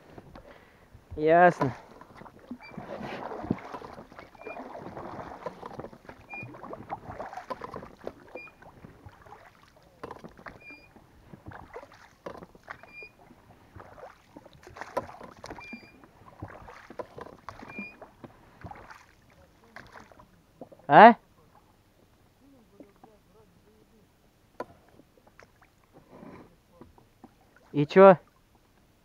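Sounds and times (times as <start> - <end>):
oars dipping in water: 0.0 - 0.7, 1.5 - 29.0
oarlocks squeaking: 4.2 - 4.7.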